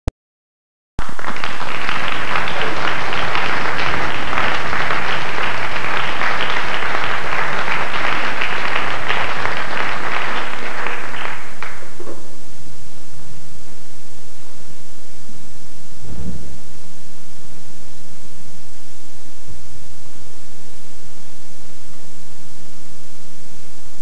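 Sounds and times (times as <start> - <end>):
audience applauding: 1.0 - 12.1.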